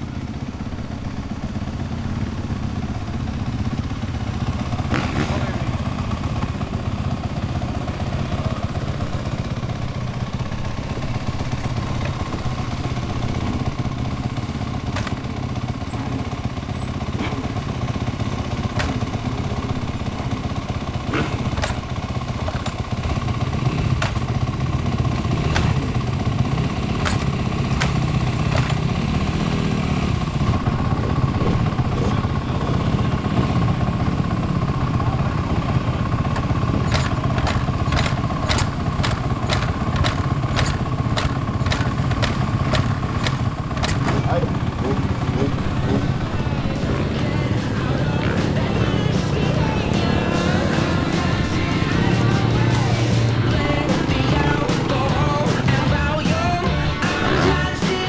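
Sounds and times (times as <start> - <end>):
dirt bike engine idling: 0.0 - 58.0
sharp clicks: 36.4 - 44.2.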